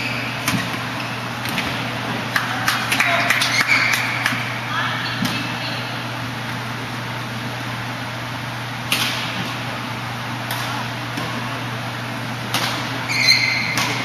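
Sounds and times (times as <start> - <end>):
steady low hum: 0.0 - 14.0
short high squeak: 13.1 - 13.8.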